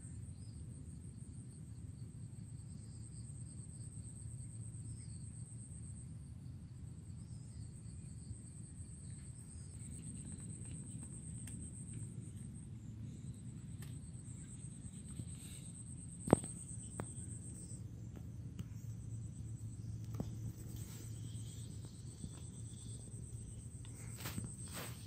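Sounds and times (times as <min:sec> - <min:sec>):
insect trilling: 0:13.1 - 0:25.0.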